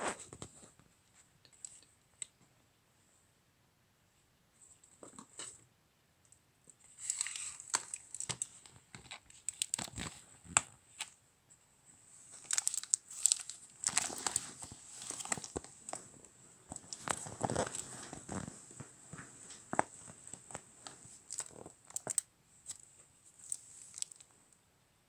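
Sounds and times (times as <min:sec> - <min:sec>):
rustling and crinkling: 0:06.7 - 0:11.2, 0:11.9 - 0:24.4.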